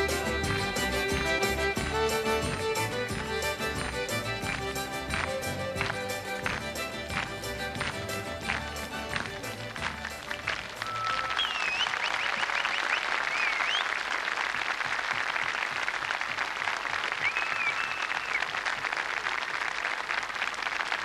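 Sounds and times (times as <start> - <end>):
audience applauding: 0.0 - 21.0
high gliding whistles: 10.8 - 13.9.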